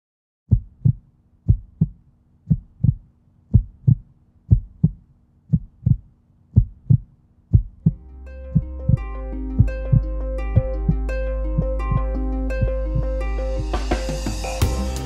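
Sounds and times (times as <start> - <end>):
heartbeat-like double thump: 0.5 - 8.0
faint low drone: 7.9 - 15.0.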